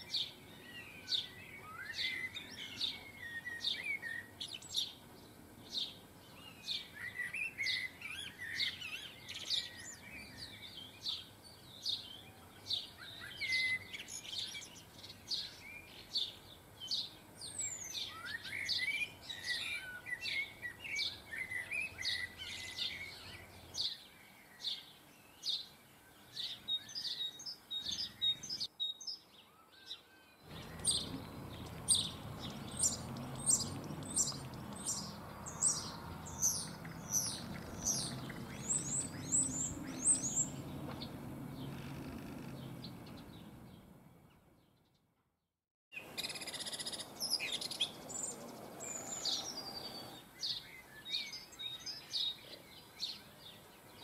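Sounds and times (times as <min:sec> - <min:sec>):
songbirds chirping: 0:00.0 - 0:45.2, 0:46.0 - 0:54.0
warbling bird twitter: 0:05.7 - 0:43.5.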